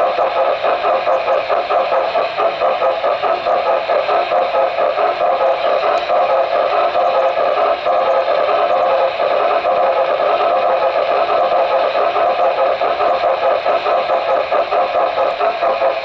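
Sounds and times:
model train wheels on rails: 0.0 - 16.0.

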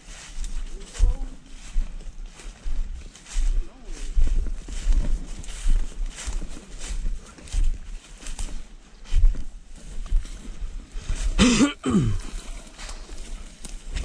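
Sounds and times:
rustling: 12.0 - 14.0.

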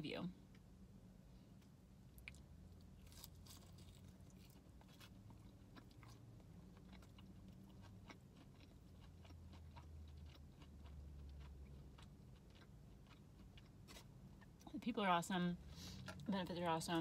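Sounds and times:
crunchy chewing of fried chicken: 2.1 - 14.7.

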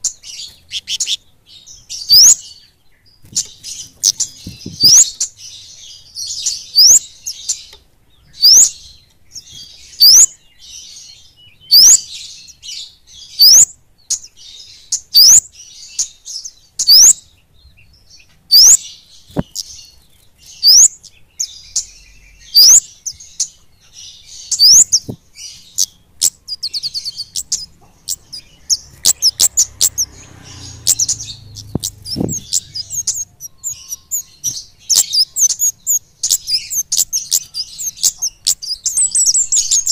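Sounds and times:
bird calling high sweeping notes: 24.6 - 39.9.

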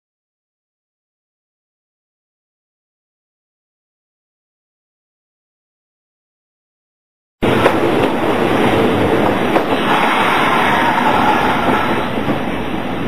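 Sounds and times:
electric train rumbling: 7.4 - 13.0.

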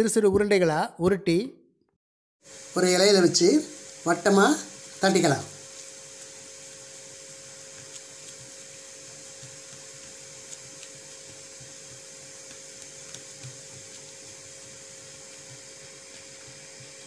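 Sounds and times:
appliance hum and hiss: 2.4 - 17.0
fingers patting dough: 7.0 - 17.0.

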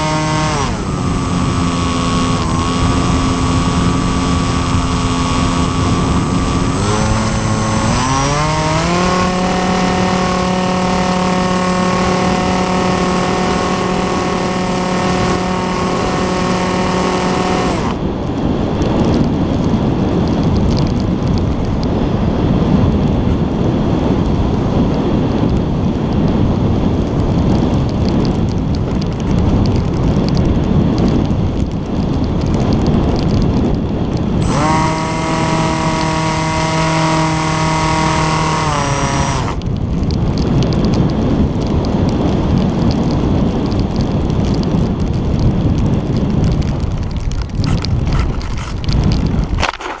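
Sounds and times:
electric motor and propeller whine: 0.0 - 21.1, 33.1 - 40.7
bumps and scrapes on sand: 0.0 - 21.7, 27.4 - 50.0
wind rushing over camera: 0.0 - 50.0.

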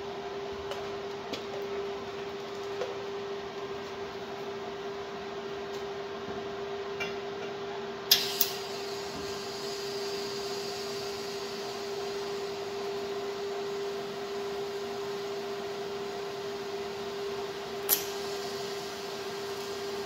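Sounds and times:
welder electrical hum: 0.0 - 20.0
sharp welder clicks: 8.1 - 8.6, 17.9 - 18.2.

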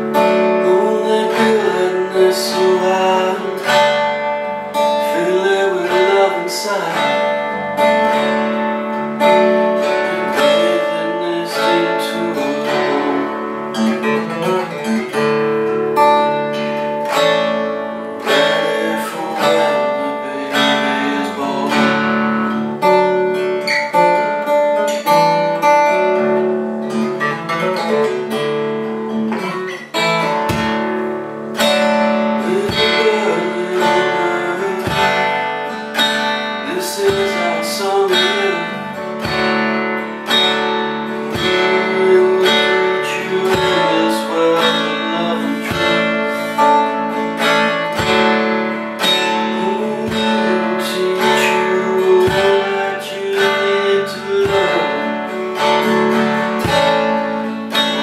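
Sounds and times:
acoustic guitar blues: 0.0 - 58.0.

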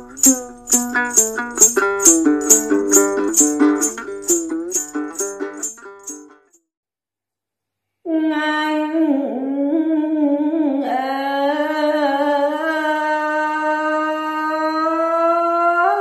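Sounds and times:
woman singing unaccompanied: 8.1 - 16.0.

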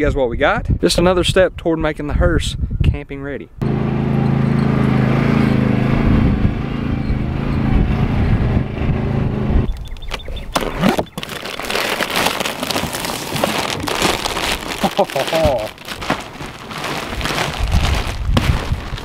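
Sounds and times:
riding mower engine running: 3.6 - 10.0
plastic wrapping crinkling: 10.6 - 19.0.

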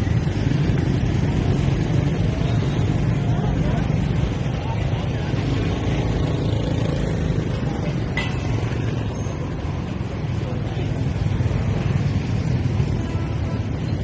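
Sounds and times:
motorbike traffic: 0.0 - 14.0.

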